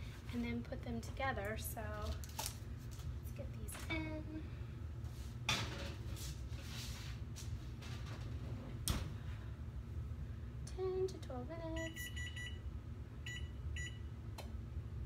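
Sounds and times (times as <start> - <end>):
oven control panel beeps: 11.8 - 14.1.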